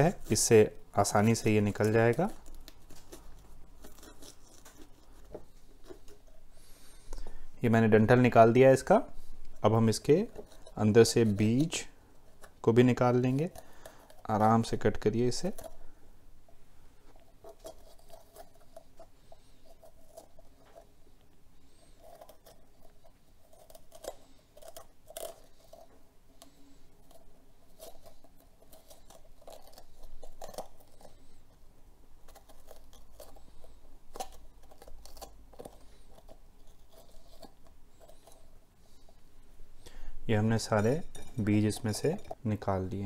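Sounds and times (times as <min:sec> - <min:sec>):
knife cutting bell pepper: 0:12.4 - 0:15.8, 0:21.7 - 0:31.2.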